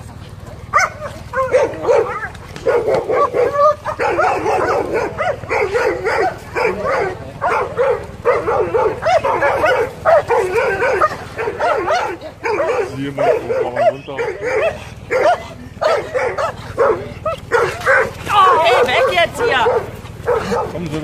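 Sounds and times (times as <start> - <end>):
dog barking rapidly: 0.7 - 21.0.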